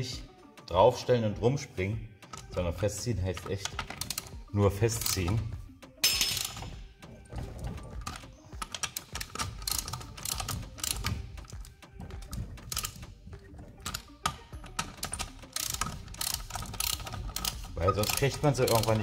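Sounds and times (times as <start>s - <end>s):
ratchet wrench clicking: 3.3s - 6.8s, 8.0s - 19.0s.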